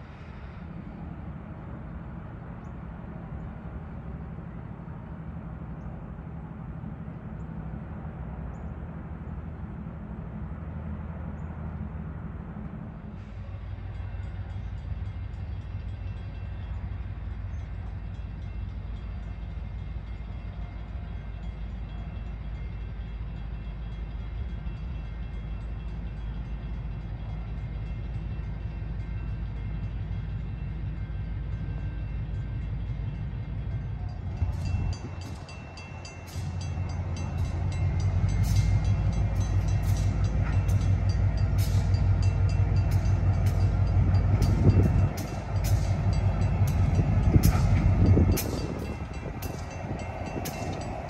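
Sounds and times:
diesel locomotive engine rumble: 0:00.0 - 0:51.0.

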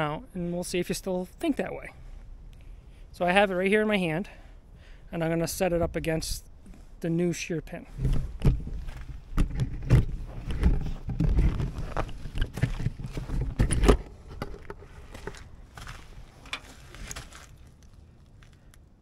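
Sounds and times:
handling clicks and knocks: 0:08.4 - 0:15.5.

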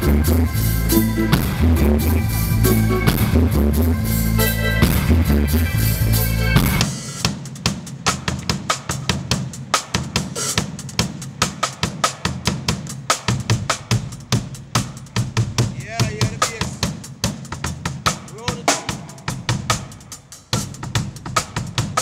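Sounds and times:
deep electric bass line: 0:00.0 - 0:06.8
drum kit playing: 0:00.0 - 0:22.0
reggae band playing: 0:00.0 - 0:22.0.

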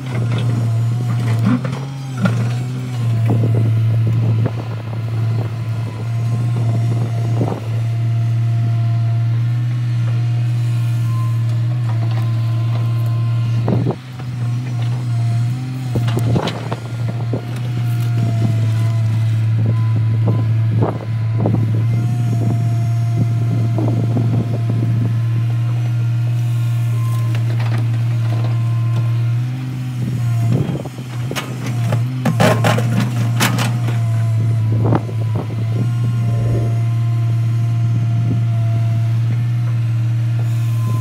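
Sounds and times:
excavator diesel engine: 0:00.0 - 0:41.0
clunks and rattles of stones: 0:13.7 - 0:19.3, 0:30.5 - 0:34.4
whine shifting in pitch: 0:34.6 - 0:39.0.

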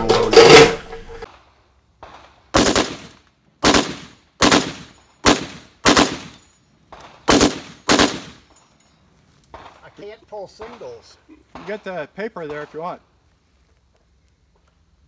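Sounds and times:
machine gun shots and bursts: 0:02.0 - 0:06.4, 0:07.0 - 0:08.4.

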